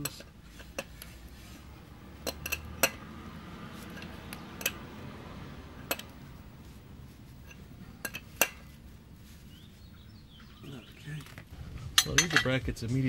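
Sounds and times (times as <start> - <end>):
wrench clinking on metal fittings: 2.2 - 3.0, 12.0 - 12.6.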